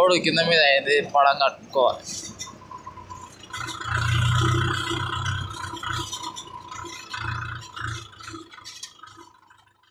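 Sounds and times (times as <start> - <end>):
tractor engine running: 0.0 - 9.9
rattling: 2.0 - 9.9.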